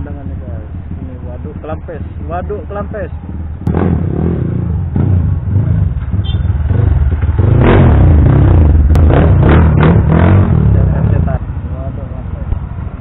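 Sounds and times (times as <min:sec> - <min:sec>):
motorcycle engine revving: 0:00.0 - 0:11.4
motorcycle engines running: 0:00.0 - 0:13.0.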